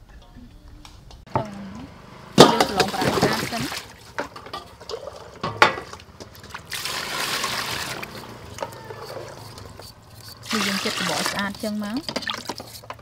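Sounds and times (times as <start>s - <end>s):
water sloshing and trickling: 2.6s - 8.6s, 10.5s - 13.0s.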